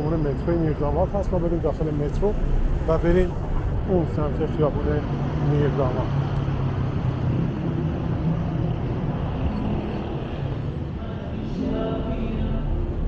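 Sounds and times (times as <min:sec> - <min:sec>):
street traffic rumble: 0:00.0 - 0:13.0
faint high whistle: 0:09.4 - 0:11.0
music: 0:11.0 - 0:13.0.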